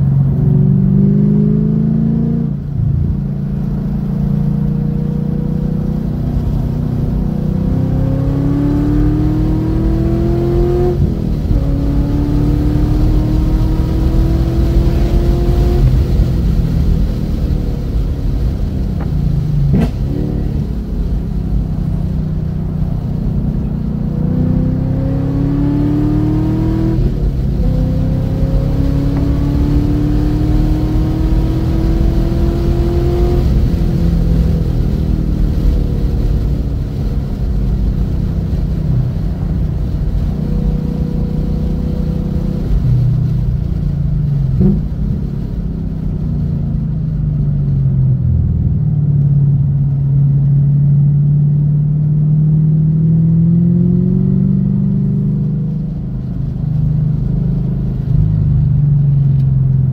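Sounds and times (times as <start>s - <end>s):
car engine revving in cabin: 0.0s - 59.9s.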